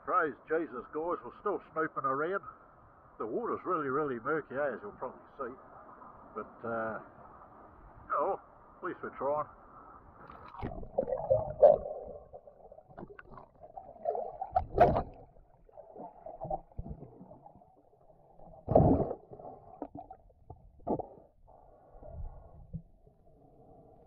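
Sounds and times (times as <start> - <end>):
muffled underwater water sloshing: 10.2 - 23.8.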